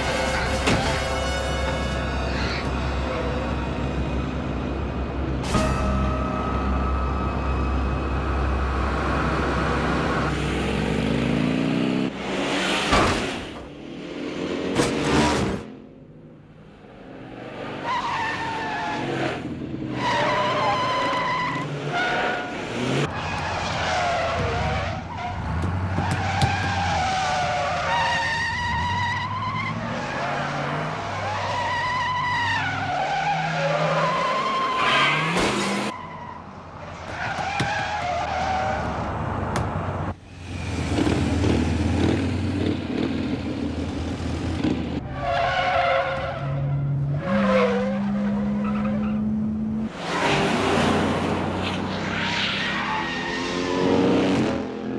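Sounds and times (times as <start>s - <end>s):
engine revving and changing gear: 8.1s - 15.9s, 38.0s - 45.1s, 46.1s - 54.9s
car tyres squealing: 17.7s - 39.9s, 45.0s - 54.0s.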